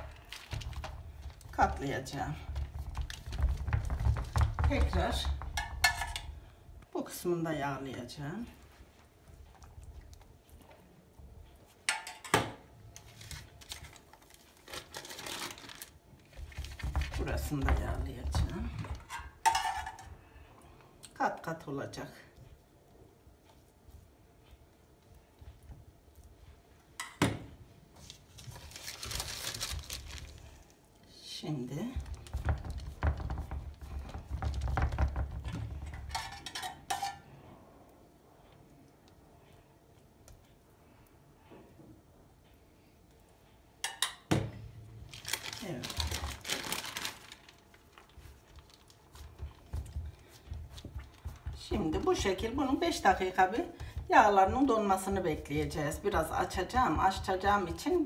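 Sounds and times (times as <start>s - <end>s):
baking paper rustling: 0.0s - 5.5s, 13.0s - 19.1s, 27.9s - 30.7s, 45.1s - 58.0s
hands patting dough: 0.0s - 6.2s, 16.3s - 19.0s, 31.8s - 36.1s, 45.3s - 58.0s.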